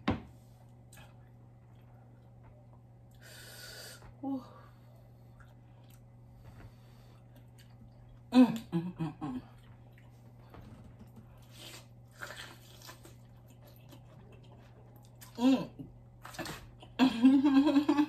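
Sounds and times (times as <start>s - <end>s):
chewing and biting: 11.4s - 15.4s.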